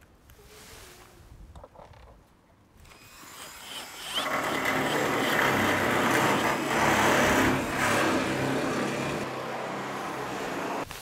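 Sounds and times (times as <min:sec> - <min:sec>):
power driver driving screw into steel: 0:02.9 - 0:09.2.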